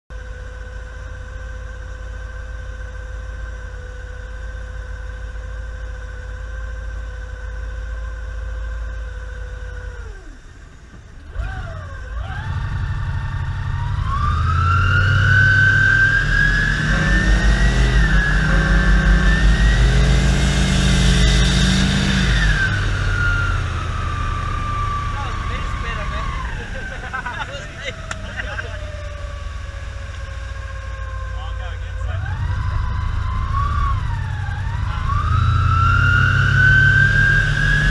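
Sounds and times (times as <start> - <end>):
boat engine running: 16.7 - 36.0, 37.5 - 37.9.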